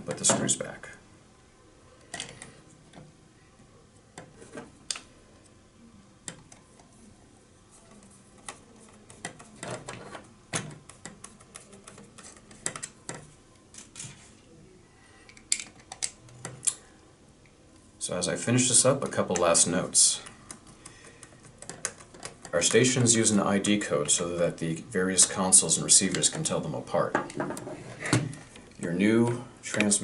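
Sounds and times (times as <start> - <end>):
plastic parts clicking and tapping: 7.9 - 14.2, 15.3 - 16.8, 20.5 - 22.6.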